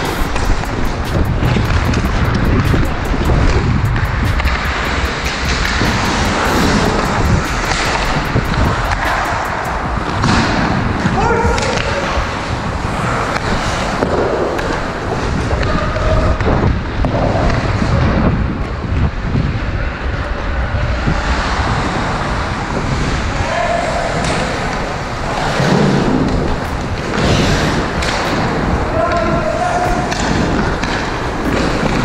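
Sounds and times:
wind on microphone: 0:00.0 - 0:32.0.

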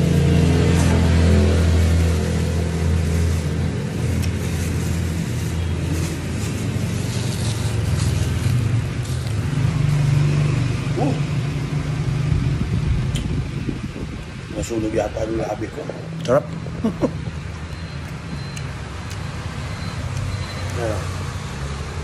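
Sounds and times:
vehicle engine running: 0:00.0 - 0:14.5
plastic glove crinkling: 0:00.6 - 0:09.9.

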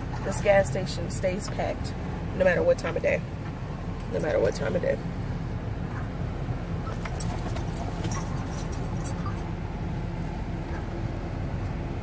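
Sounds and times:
car engine rumble from inside cabin: 0:00.0 - 0:12.0.

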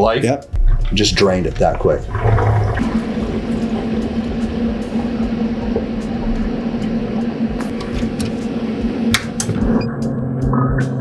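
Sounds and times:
steady pump hum: 0:01.0 - 0:09.8
water rushing and splashing: 0:01.4 - 0:09.4.

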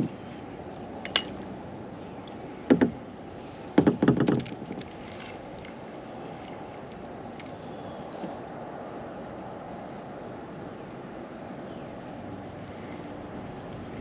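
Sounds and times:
gear knocking in plastic kayak: 0:02.7 - 0:03.0, 0:03.7 - 0:05.7.

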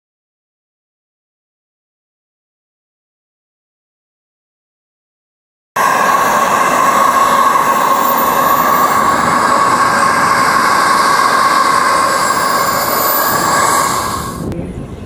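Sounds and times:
jet turbine whining and rushing: 0:05.8 - 0:14.6.

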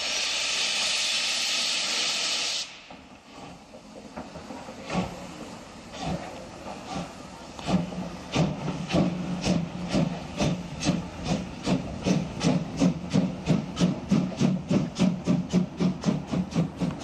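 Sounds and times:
steam hissing from drain cocks: 0:00.0 - 0:03.2
steam locomotive exhaust chuffing: 0:00.0 - 0:17.0.

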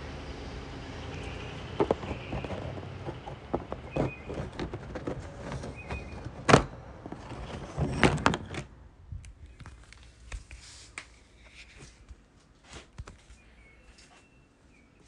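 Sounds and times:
cluster of knocks: 0:01.7 - 0:07.2.

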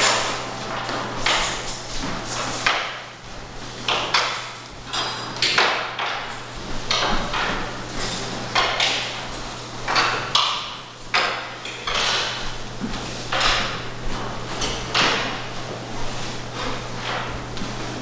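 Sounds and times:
plates and cutlery clinking: 0:03.9 - 0:12.5.

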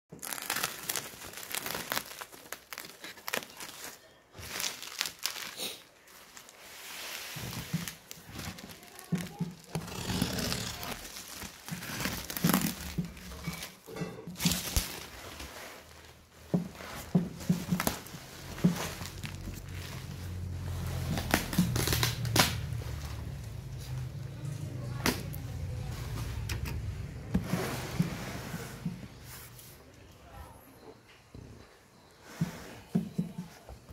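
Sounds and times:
bubble wrap crinkling: 0:00.1 - 0:26.5.

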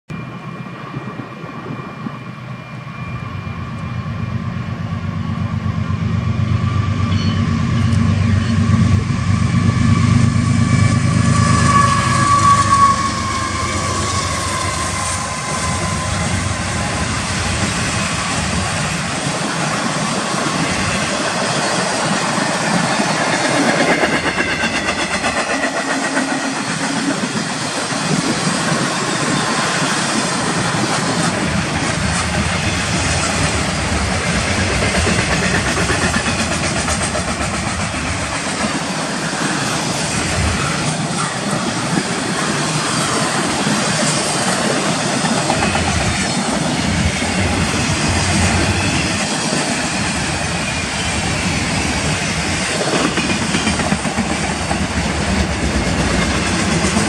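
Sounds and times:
high whine: 0:00.1 - 0:19.5
train wheels rolling on rails: 0:00.1 - 0:57.0.

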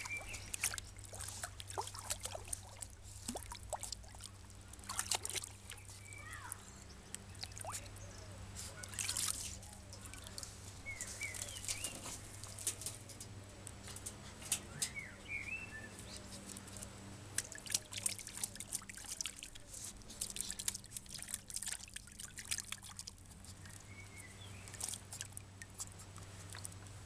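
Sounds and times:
bird chirping: 0:00.0 - 0:01.0, 0:05.6 - 0:13.2, 0:14.5 - 0:17.9, 0:23.6 - 0:25.0
dog splashing in water: 0:00.0 - 0:06.6, 0:08.6 - 0:13.1, 0:16.5 - 0:27.0.

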